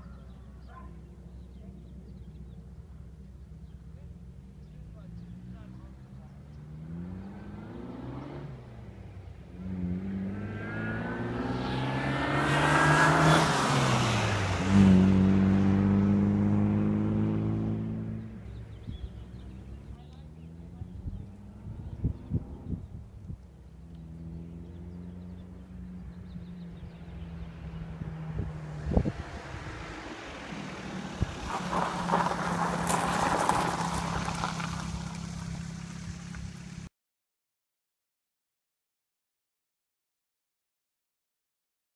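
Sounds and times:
sports car engine accelerating: 1.4s - 36.9s.

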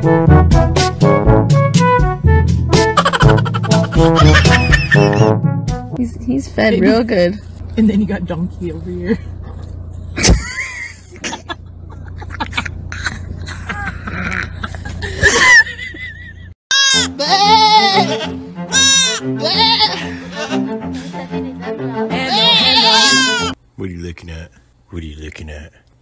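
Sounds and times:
background music: 0.0s - 7.2s, 16.7s - 23.6s
steady low hum: 5.9s - 16.6s
goat kid bleating: 16.7s - 20.5s, 22.2s - 23.6s.

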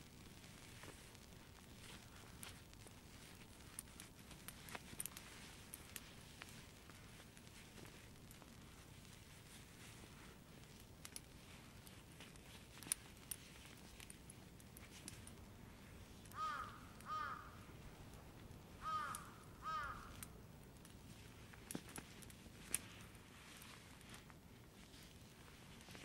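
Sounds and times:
crow cawing: 16.3s - 17.6s, 18.8s - 20.2s.

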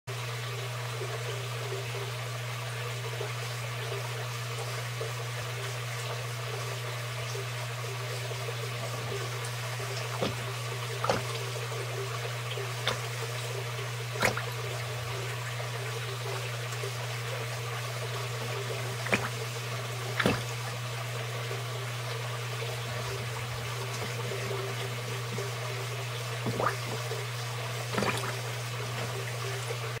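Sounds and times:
steady low hum: 2.8s - 30.0s
turtle splashing in water: 9.9s - 11.7s, 12.6s - 15.5s, 18.6s - 20.9s, 22.8s - 27.1s, 27.8s - 29.2s.

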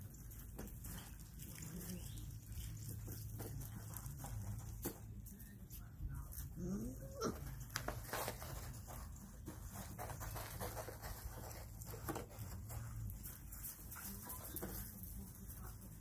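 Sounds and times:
puppies scuffling: 0.0s - 16.0s
faint puppy whines: 6.4s - 7.7s.

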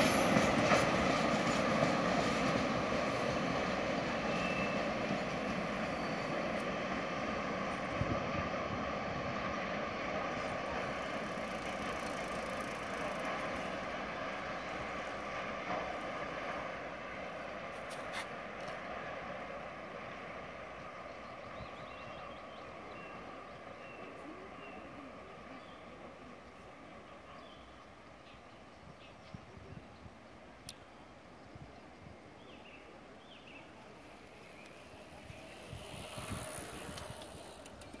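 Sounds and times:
freight train wheels on rails: 0.0s - 38.0s
wind buffeting microphone: 7.2s - 10.8s, 35.0s - 38.0s
faint clicks: 30.6s - 30.9s, 36.8s - 38.0s.

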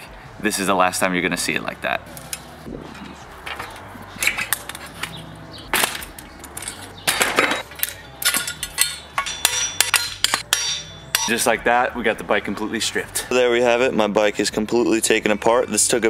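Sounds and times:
metal bike parts clanking: 2.1s - 11.6s
hammer striking metal: 7.1s - 11.6s.

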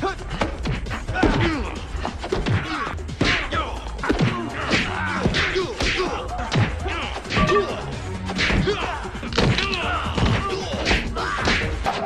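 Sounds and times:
action music: 0.0s - 12.0s
punch and kick whacks: 4.1s - 7.6s, 8.3s - 8.8s.

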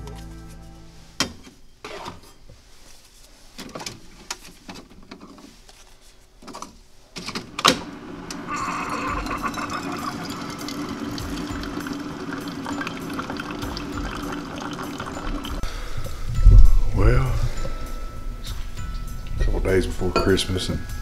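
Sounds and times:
coffee maker pump humming: 8.0s - 15.6s
coffee pouring: 8.4s - 15.6s.

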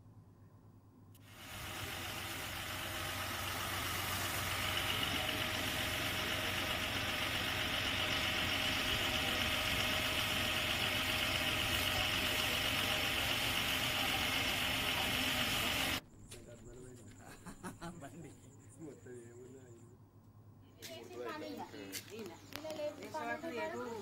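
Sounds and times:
hiss: 1.2s - 16.0s
motor running: 1.2s - 16.0s.

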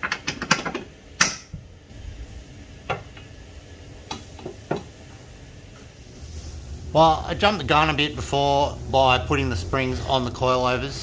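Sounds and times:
metal parts clicking and knocking: 0.0s - 1.6s.

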